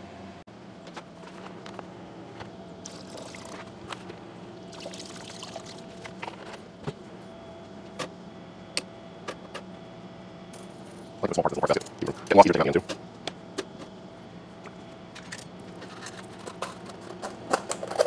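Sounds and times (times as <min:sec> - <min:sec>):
faint steady hum: 0:00.0 - 0:18.0
liquid pouring into metal tank: 0:04.7 - 0:05.8.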